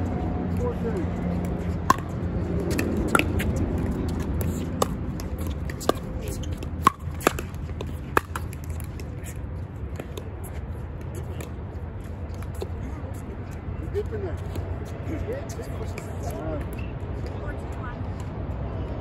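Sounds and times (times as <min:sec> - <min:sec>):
wind rumble on microphone: 0:00.0 - 0:19.0
paddles striking a ball: 0:01.4 - 0:09.2.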